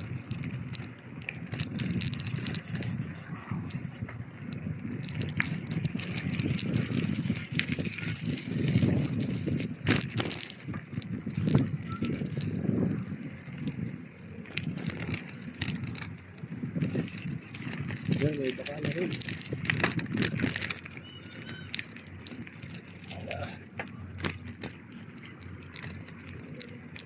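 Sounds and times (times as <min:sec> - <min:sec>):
bicycle clicks and rattles: 0:00.0 - 0:27.0
bicycle low rumble: 0:00.0 - 0:27.0.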